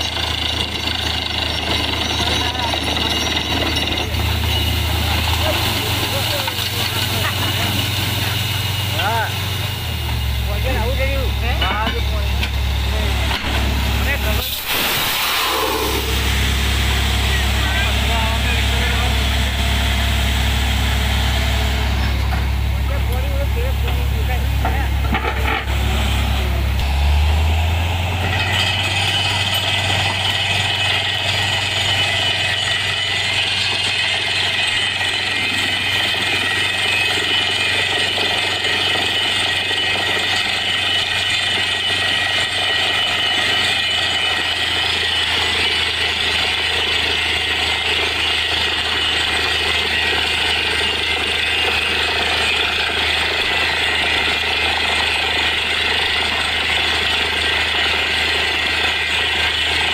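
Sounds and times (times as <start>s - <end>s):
low engine drone: 3.5s - 36.9s
compressed air hissing: 14.4s - 17.2s.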